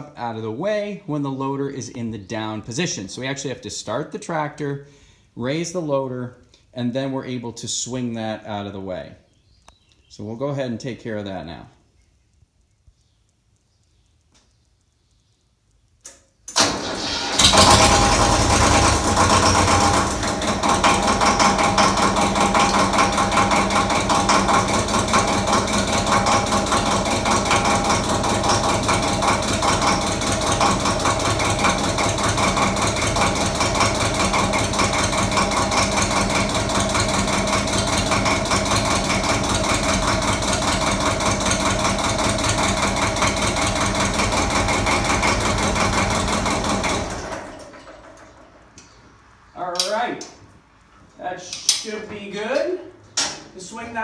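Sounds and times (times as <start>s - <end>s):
diesel tractor engine idling: 16.6s - 48.7s.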